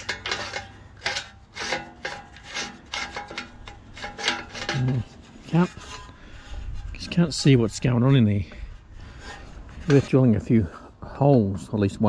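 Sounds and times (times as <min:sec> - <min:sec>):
plastic pulley scraping and ratcheting: 0:00.0 - 0:07.9.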